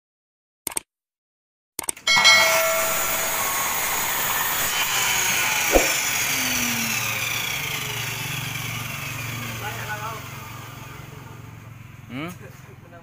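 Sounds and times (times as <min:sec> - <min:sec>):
sharp click: 0:01.8 - 0:02.0, 0:05.7 - 0:06.1
miter saw spinning down: 0:02.1 - 0:12.1.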